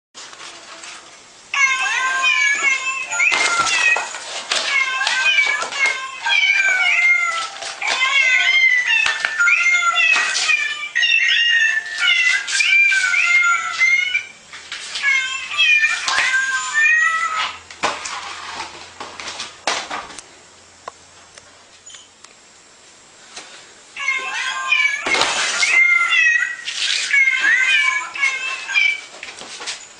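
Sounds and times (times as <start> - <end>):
greeting card meowing tune: 1.6 - 4.0, 4.6 - 14.3, 15.1 - 17.4, 24.0 - 25.1.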